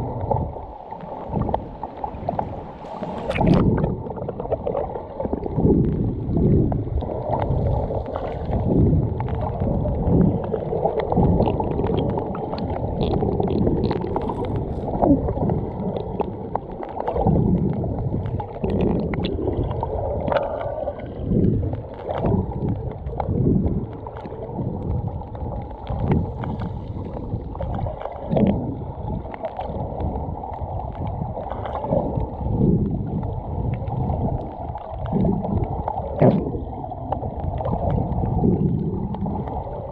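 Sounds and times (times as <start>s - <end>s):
wind buffeting microphone: 0.0s - 4.7s, 5.4s - 16.2s
sea waves washing: 0.0s - 39.9s.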